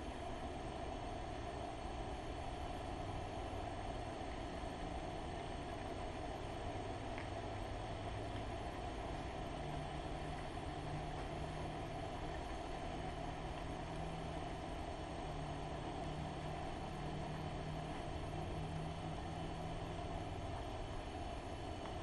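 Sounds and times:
low mechanical motor hum: 0:00.0 - 0:22.0.

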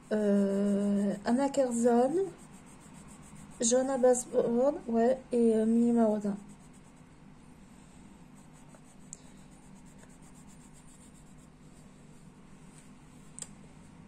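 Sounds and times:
pencil scratching on paper: 0:00.0 - 0:07.2, 0:08.2 - 0:12.4.

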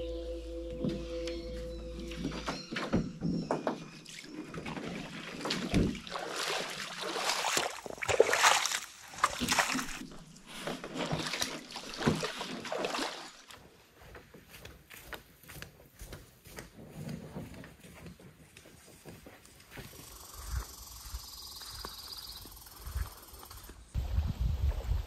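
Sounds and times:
canoe hulls and paddles knocking: 0:00.8 - 0:10.0
water splashing and sloshing: 0:00.8 - 0:13.8
footsteps on forest trail: 0:05.4 - 0:24.0.

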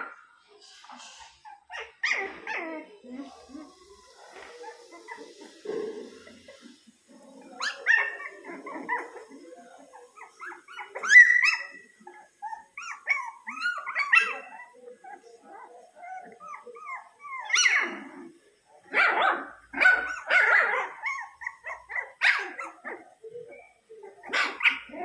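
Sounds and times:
puppies yelping and whining: 0:00.9 - 0:06.8, 0:07.5 - 0:18.3, 0:20.0 - 0:25.0.

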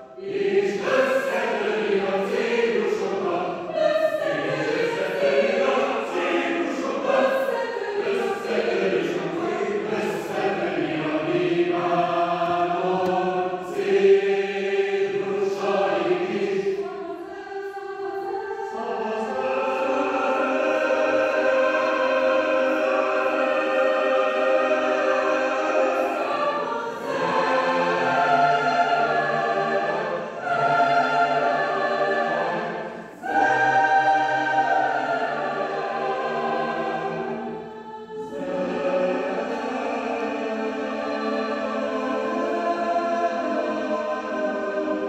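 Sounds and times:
choir singing unaccompanied: 0:00.0 - 0:45.0.

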